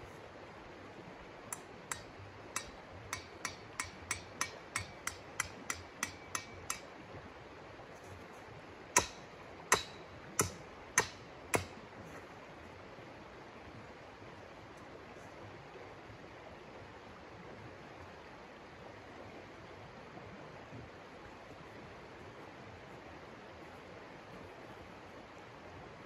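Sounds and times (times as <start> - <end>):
hammer striking tent stake: 1.5 - 6.9, 9.0 - 11.8.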